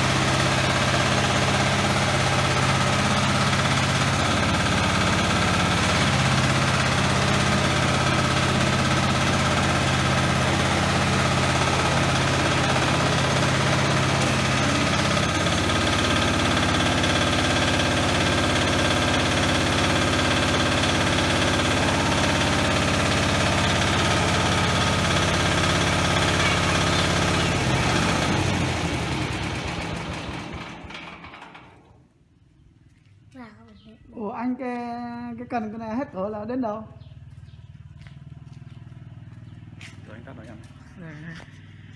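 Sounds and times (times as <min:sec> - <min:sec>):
harvester engine idling: 0:00.0 - 0:32.0.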